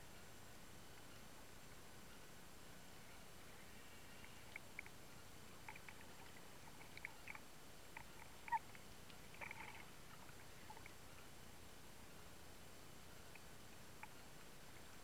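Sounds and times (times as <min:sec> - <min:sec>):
faint underwater hiss: 0:02.2 - 0:15.0
small underwater clicks: 0:04.2 - 0:11.3, 0:13.3 - 0:15.0.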